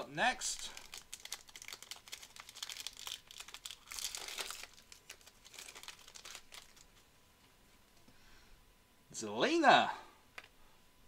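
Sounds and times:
plastic wrapper crinkling and tearing: 0.6 - 7.0.

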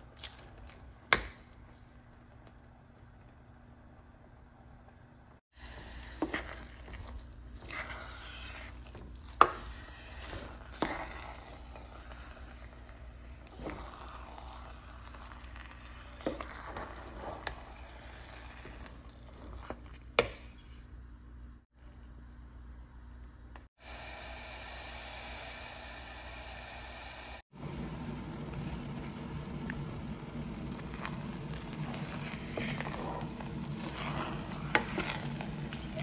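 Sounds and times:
wooden spoon stirring thick mix: 0.0 - 1.1, 5.6 - 20.8, 27.6 - 36.0.

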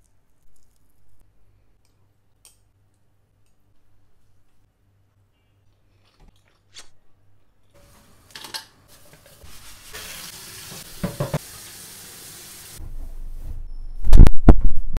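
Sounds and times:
tap running into steel sink: 10.8 - 11.4.

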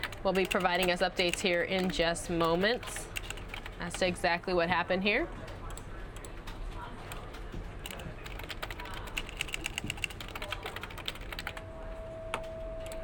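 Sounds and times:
keyboard typing clicks: 5.5 - 11.6
low steady hum: 7.9 - 13.0.

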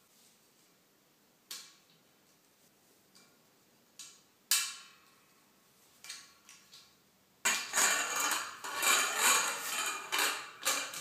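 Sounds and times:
metal shelving poles clinking: 7.5 - 11.0.

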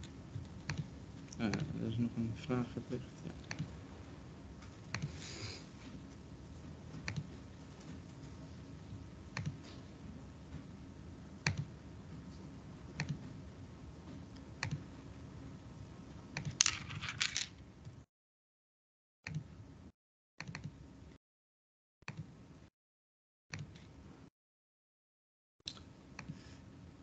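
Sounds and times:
computer mouse clicks: 0.6 - 0.9, 4.9 - 5.2, 7.0 - 7.3, 9.4 - 9.8, 11.4 - 11.7, 13.0 - 13.2, 14.6 - 14.8
typing on a computer keyboard: 0.6 - 0.9, 13.0 - 13.2.

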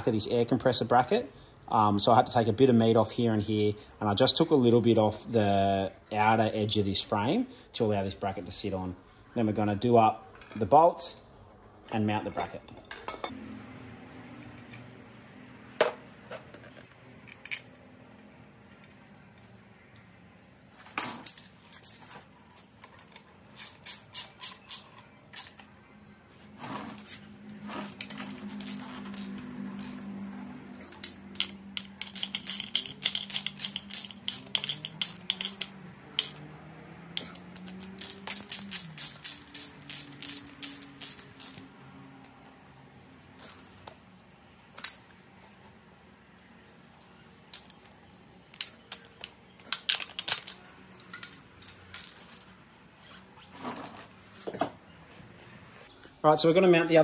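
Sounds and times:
socket ratchet clicking: 23.5 - 25.6, 28.0 - 30.1, 30.8 - 36.5, 37.1 - 41.7.

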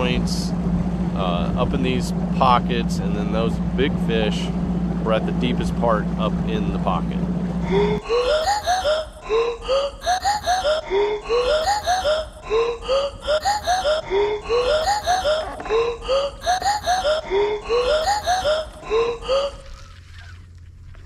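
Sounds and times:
low rumble: 0.0 - 21.0
looped voice-like music: 7.6 - 19.8.

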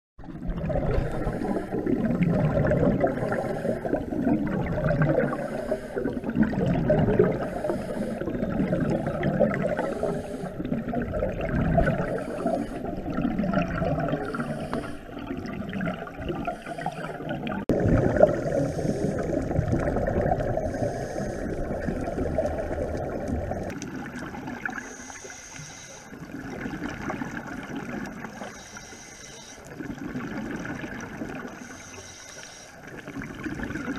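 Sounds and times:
gurgling exhaled bubbles: 0.2 - 25.0, 26.2 - 28.5, 29.7 - 31.7, 32.8 - 33.9
scuba regulator hiss: 18.5 - 19.2, 24.8 - 26.2, 28.4 - 29.7, 31.6 - 32.8.

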